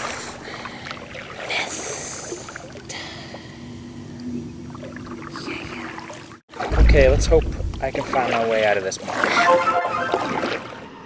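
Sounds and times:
water splashing around kayak: 0.0s - 3.4s, 4.6s - 11.0s.

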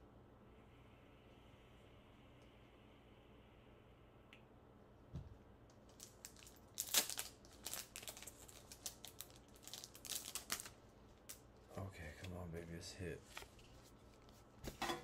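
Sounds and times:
foil wrapper crinkling and tearing: 5.8s - 11.4s.

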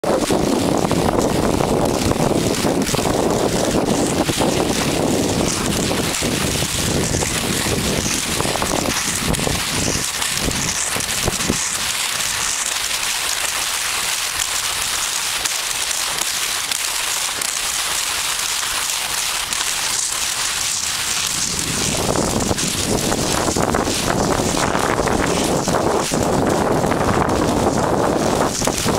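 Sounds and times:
wind rumbling on microphone: 0.0s - 12.9s, 20.4s - 28.9s
skis hissing over crusted snow: 3.4s - 28.9s.

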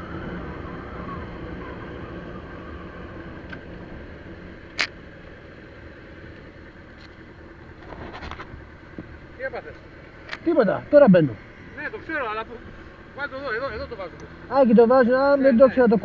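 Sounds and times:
motorcycle engine idling: 1.5s - 16.0s
sharp clicks: 4.7s - 5.0s.

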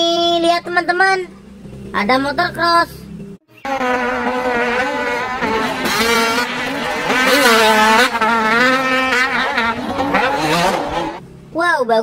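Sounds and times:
dirt bike engine revving: 3.5s - 11.3s.

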